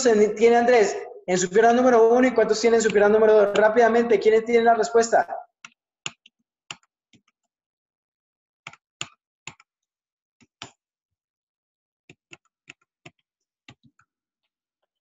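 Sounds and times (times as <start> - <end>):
keyboard and mouse clicks: 5.6 - 7.5, 8.6 - 9.7, 10.4 - 10.8, 12.1 - 14.1.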